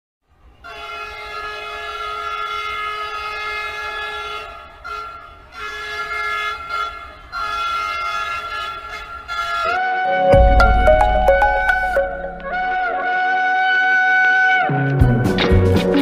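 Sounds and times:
train horn blasts: 0.6s - 14.0s.

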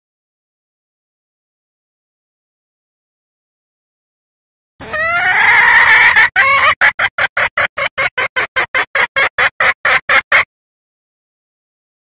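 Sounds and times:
hen calling and clucking: 4.8s - 10.5s.

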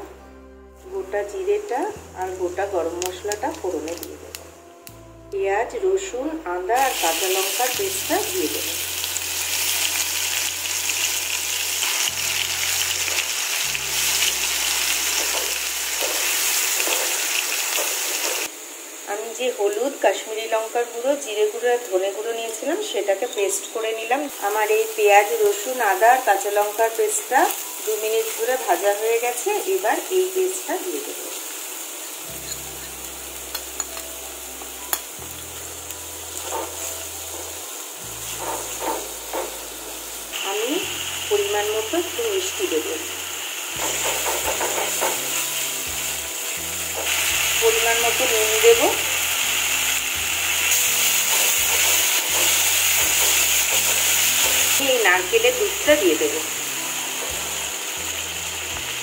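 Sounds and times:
paste sizzling in hot oil: 6.7s - 59.0s
spatula scraping and stirring: 50.7s - 54.8s.

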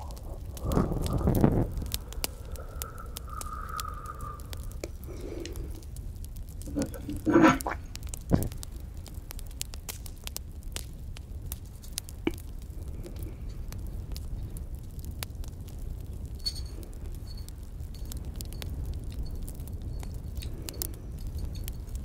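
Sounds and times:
low rumble: 0.0s - 8.5s
campfire crackling: 0.0s - 22.0s.

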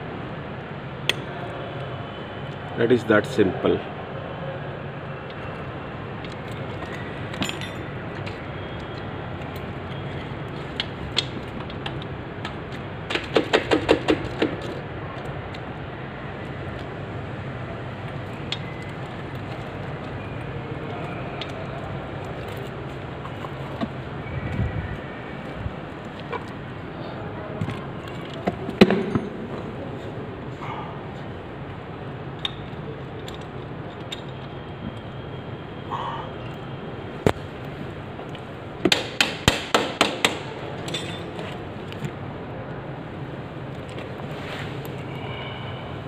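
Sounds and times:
metallic chain and tool clinks: 7.3s - 8.0s, 40.9s - 41.3s.

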